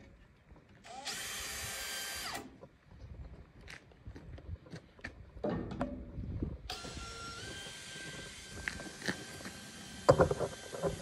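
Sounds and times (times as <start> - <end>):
small electric motor whirring: 0.8 - 2.5, 6.7 - 11.0.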